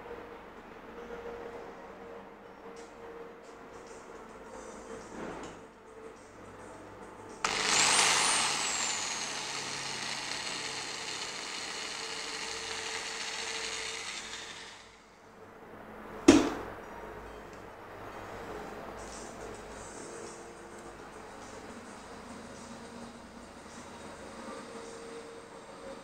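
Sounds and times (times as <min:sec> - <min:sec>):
cordless drill motor whine: 0:07.4 - 0:15.1
sharp knock: 0:16.3 - 0:16.6.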